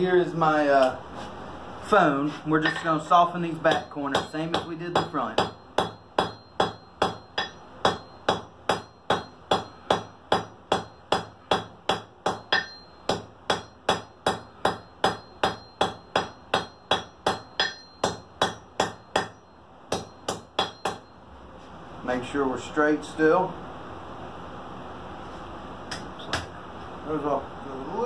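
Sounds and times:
hammer striking steel on anvil: 2.6 - 21.2.

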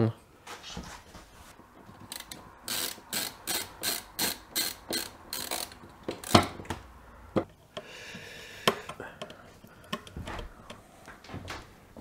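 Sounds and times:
screwdriver ratcheting: 1.9 - 6.6.

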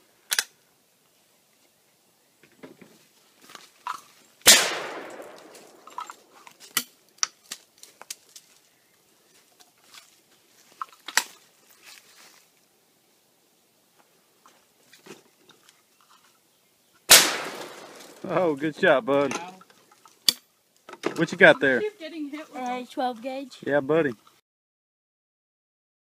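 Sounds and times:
shotgun shot: 4.5 - 5.8, 17.1 - 18.2
faint rustling: 5.0 - 12.7, 21.2 - 24.4.

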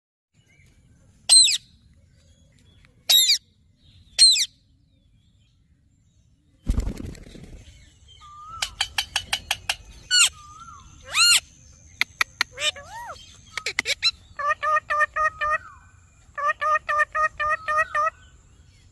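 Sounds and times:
parakeets screeching: 8.3 - 11.5, 12.4 - 15.8.

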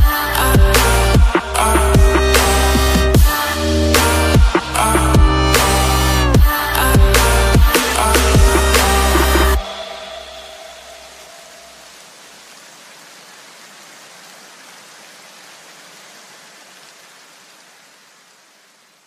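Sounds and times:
steady electronic hiss: 0.0 - 13.6.

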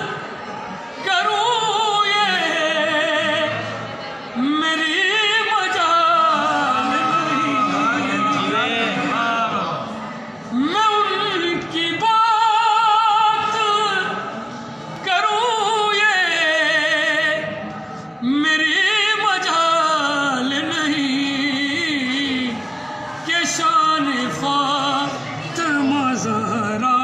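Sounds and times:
man singing devotional recitation: 1.0 - 3.6, 4.4 - 9.9, 10.5 - 14.3, 15.0 - 17.5, 18.2 - 22.6, 23.2 - 27.0.

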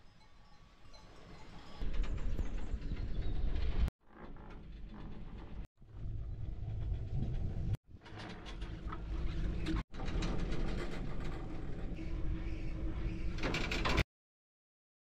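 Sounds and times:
wind rumble on microphone: 1.0 - 3.9, 4.6 - 14.0.

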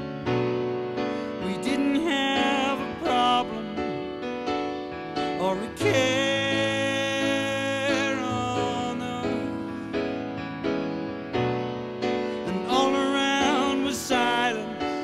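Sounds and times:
slow piano song: 0.0 - 15.0
person singing with vibrato: 1.2 - 4.4, 5.2 - 10.0, 12.3 - 15.0.

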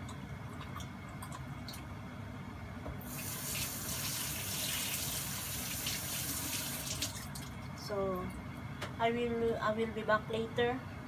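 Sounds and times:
kitchen faucet turned on: 3.0 - 7.2
water running into sink: 3.0 - 7.6.

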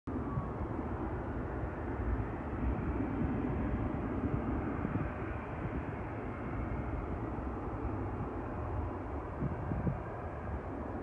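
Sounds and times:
distant jet engines rushing: 0.1 - 11.0.

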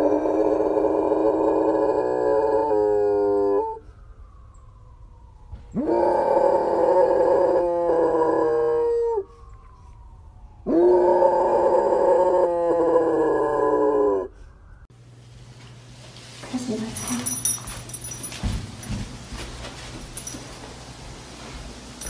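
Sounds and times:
dog howling: 0.0 - 3.8, 5.7 - 9.5, 10.6 - 14.4.

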